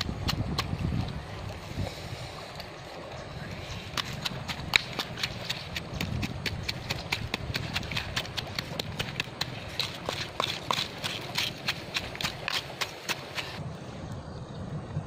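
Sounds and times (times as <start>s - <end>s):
pestle pounding in mortar: 3.9s - 13.6s.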